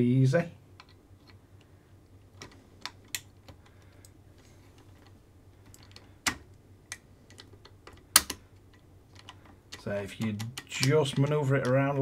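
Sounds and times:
small parts clicking and tapping: 0.8 - 12.0.

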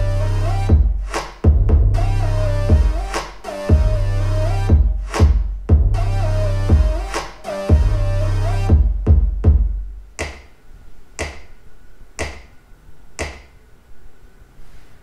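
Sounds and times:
electronic music with synth bass: 0.0 - 9.8
drum machine hits: 0.0 - 10.5.

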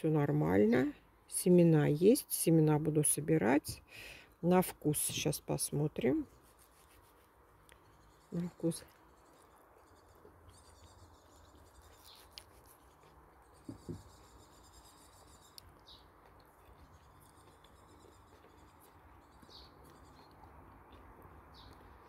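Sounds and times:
faint high bird chirps: 16.9 - 21.8.

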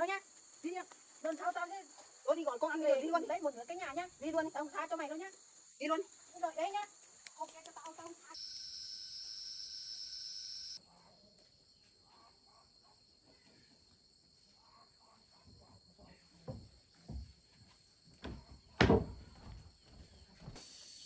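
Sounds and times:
dull thumps: 18.2 - 20.6.

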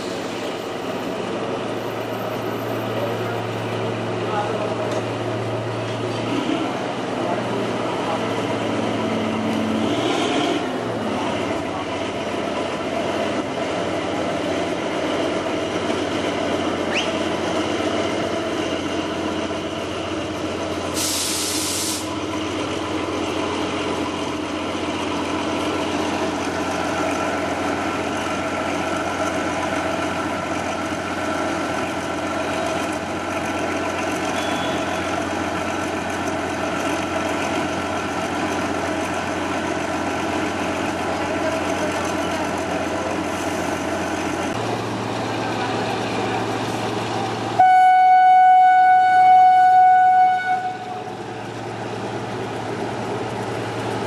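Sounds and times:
diesel locomotive engine running: 0.0 - 54.0
locomotive horn blast: 9.8 - 10.7, 34.3 - 35.1, 47.6 - 51.1
short hiss: 21.0 - 22.1.

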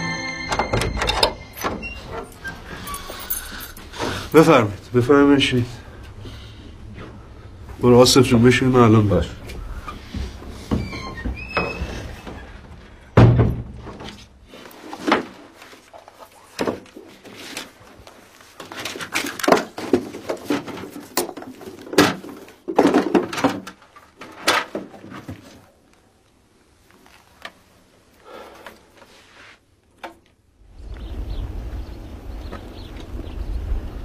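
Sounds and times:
wooden boxes and furniture thudding: 10.1 - 14.3, 19.5 - 25.4.

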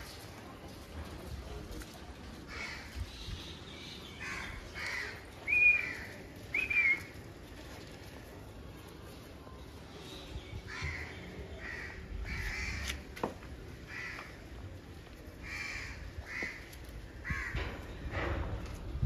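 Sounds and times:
crows cawing: 2.5 - 2.9, 4.2 - 5.3, 10.7 - 13.1, 13.8 - 14.6, 15.4 - 17.7.

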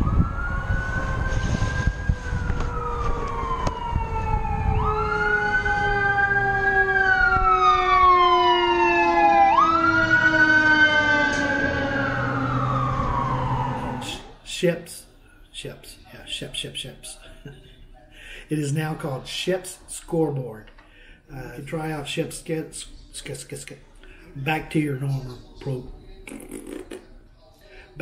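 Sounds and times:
sirens wailing: 0.0 - 14.4.

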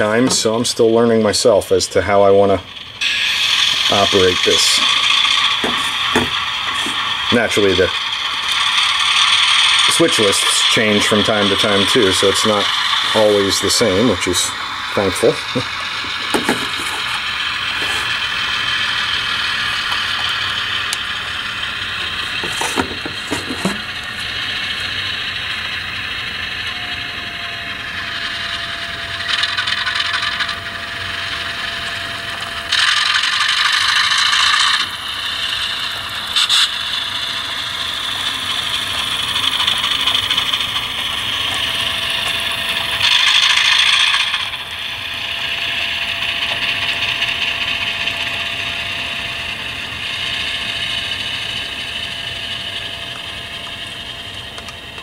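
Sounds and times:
diesel engine sound from small speaker: 0.0 - 55.0
model motor and gears whirring: 0.0 - 55.0.

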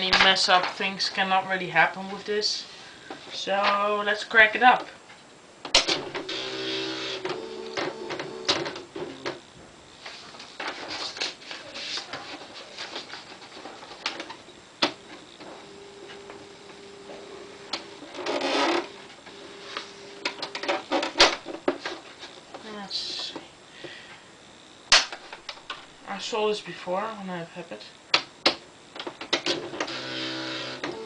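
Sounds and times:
buzzing whir: 5.7 - 11.3, 14.0 - 21.6, 27.9 - 31.0
typewriter motor hum: 5.8 - 9.4, 29.4 - 31.0.

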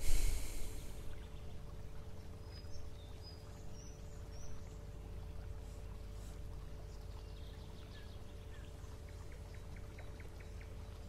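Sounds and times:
deep breath through nose: 0.0 - 1.1
faint hum: 0.0 - 11.0.

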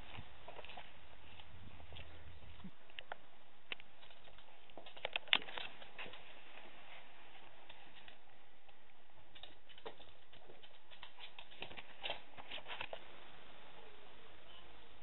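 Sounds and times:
dog claws clicking on hard floor: 3.7 - 6.3, 7.7 - 8.3, 9.3 - 13.0.

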